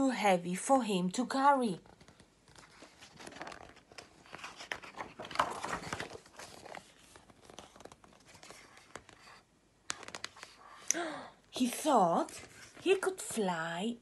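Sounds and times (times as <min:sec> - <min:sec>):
paper pages rustling: 0:01.8 - 0:10.9, 0:11.6 - 0:13.5.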